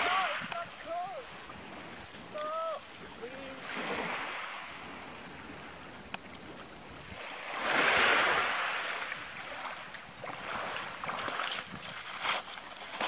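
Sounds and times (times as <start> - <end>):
waves washing over pebbles: 0.0 - 13.0
feet splashing in shallow water: 7.1 - 13.0.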